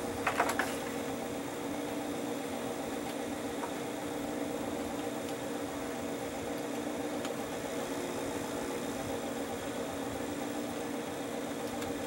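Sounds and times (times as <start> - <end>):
tape recorder motor hum: 0.0 - 12.0.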